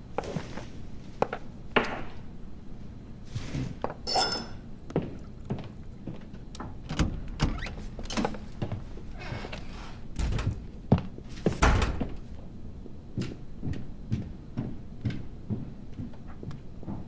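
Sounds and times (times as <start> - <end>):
footsteps on hard floor: 0.2 - 1.4, 13.2 - 17.0
door opening and shutting: 6.6 - 8.5, 9.2 - 10.6, 11.5 - 12.2.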